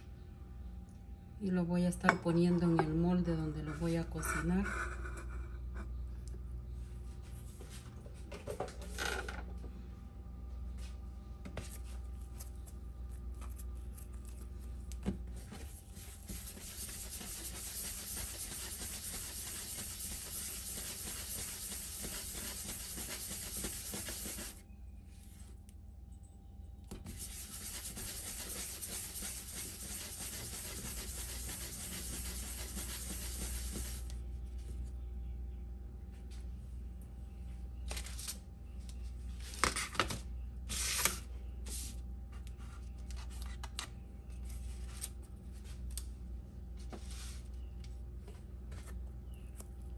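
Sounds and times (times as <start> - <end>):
hands rolling dough on wood: 14.9 - 24.6, 27.0 - 34.2.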